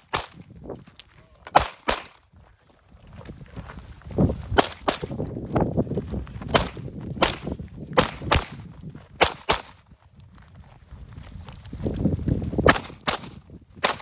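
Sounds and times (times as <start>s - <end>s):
pistol shots: 0.0s - 0.4s, 1.5s - 2.2s, 4.6s - 5.1s, 6.5s - 8.6s, 9.2s - 9.8s, 12.7s - 14.0s
footsteps on gravel: 0.4s - 12.7s.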